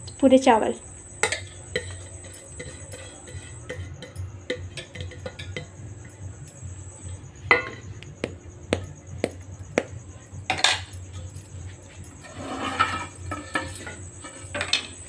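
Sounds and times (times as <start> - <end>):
metal clatter: 1.2 - 6.7, 10.5 - 15.0
spoon clinking on metal pot: 1.2 - 6.7.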